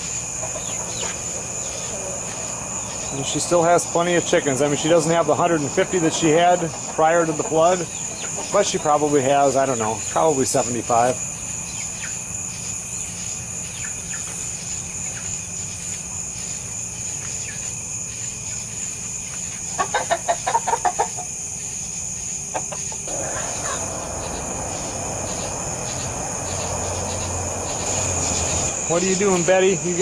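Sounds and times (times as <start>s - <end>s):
crickets chirping: 0.0s - 30.0s
chicken clucking: 0.4s - 2.7s, 5.5s - 9.2s, 19.6s - 21.4s, 22.5s - 25.6s
soft rushing noise: 23.1s - 30.0s.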